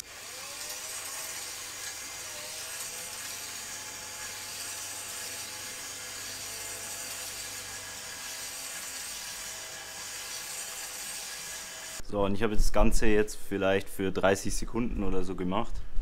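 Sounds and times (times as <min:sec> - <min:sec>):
faint drill motor whine: 0:00.0 - 0:12.0.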